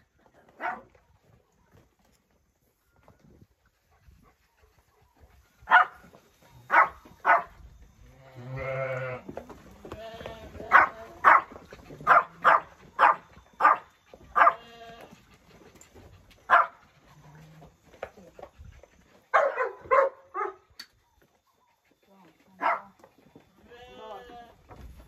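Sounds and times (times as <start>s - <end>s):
dog barking: 0.6s - 0.9s, 5.7s - 6.0s, 6.7s - 7.6s, 10.7s - 14.7s, 16.5s - 16.8s, 19.3s - 20.6s, 22.6s - 23.0s
sheep bleating: 8.3s - 9.3s, 9.9s - 11.2s, 14.4s - 15.2s, 23.6s - 24.6s.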